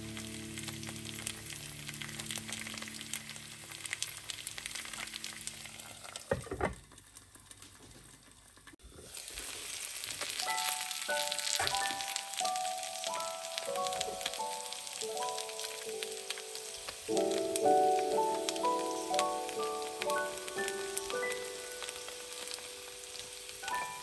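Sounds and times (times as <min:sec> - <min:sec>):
soft musical notes: 0:00.0 - 0:05.5, 0:10.4 - 0:24.0
potatoes sizzling in frying pan: 0:00.0 - 0:24.0.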